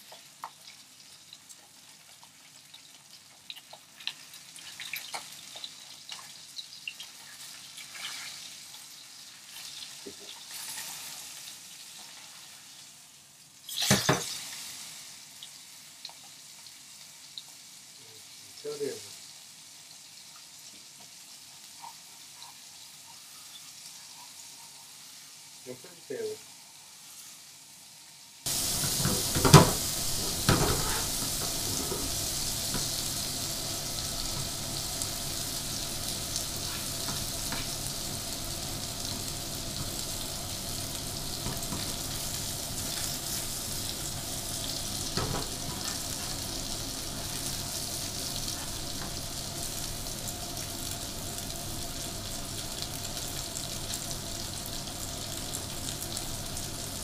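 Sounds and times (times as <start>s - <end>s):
fish sizzling in a frying pan: 0.0s - 57.0s.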